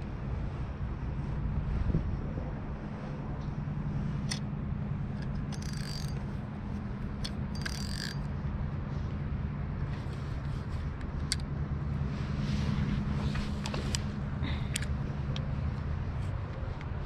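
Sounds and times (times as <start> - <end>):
steady low rumble: 0.0 - 17.0
fishing reel gears whirring: 5.1 - 8.4.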